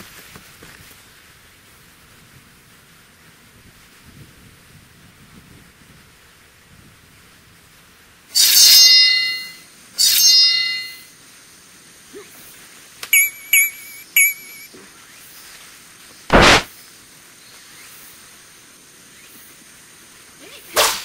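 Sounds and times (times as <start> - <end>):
metallic sword clangs: 8.4 - 11.0
short ringing clinks: 13.2 - 14.7
short sharp hit: 16.3 - 16.7.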